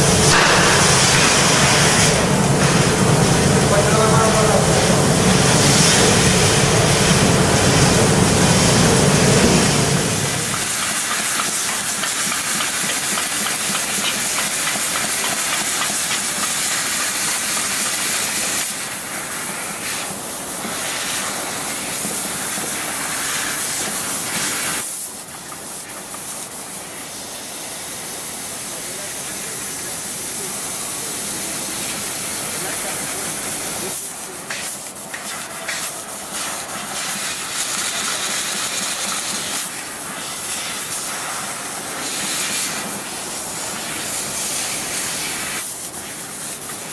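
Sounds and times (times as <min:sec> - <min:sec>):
low machine rumble: 0:00.0 - 0:10.6
laser cutter gas jet hiss: 0:00.0 - 0:46.9.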